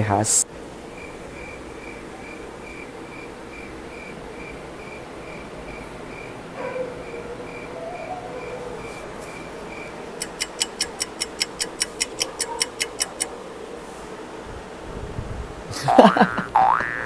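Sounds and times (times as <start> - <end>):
faint steady hum: 0.0 - 17.0
cricket-like chirp: 0.9 - 6.4, 7.0 - 13.3
fast clock-like ticking: 10.2 - 13.3.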